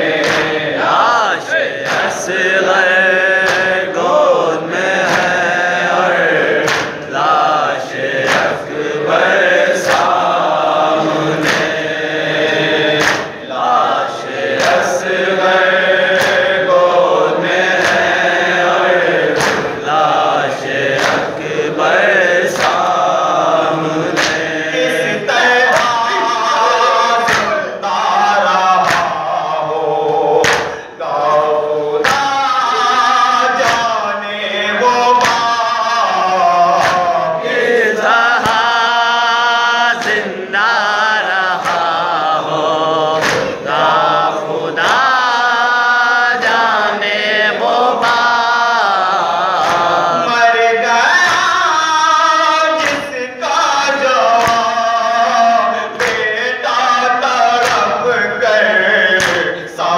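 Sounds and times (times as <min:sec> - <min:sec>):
group of men singing: 0:00.0 - 0:59.9
hand slaps on chest: 0:00.2 - 0:00.6, 0:01.8 - 0:02.2, 0:03.4 - 0:03.7, 0:05.0 - 0:05.4, 0:06.6 - 0:07.0, 0:08.2 - 0:08.6, 0:11.4 - 0:11.8, 0:13.0 - 0:13.3, 0:14.6 - 0:14.9, 0:16.2 - 0:16.4, 0:19.3 - 0:19.7, 0:21.0 - 0:21.3, 0:22.5 - 0:22.9, 0:24.1 - 0:24.4, 0:25.7 - 0:26.0, 0:27.3 - 0:27.6, 0:28.8 - 0:29.2, 0:30.4 - 0:30.9, 0:33.6 - 0:33.9, 0:35.2 - 0:35.5, 0:36.8 - 0:37.1, 0:43.2 - 0:43.6, 0:54.4 - 0:54.7, 0:56.0 - 0:56.2, 0:59.2 - 0:59.5
man chanting into microphone: 0:19.8 - 0:59.9.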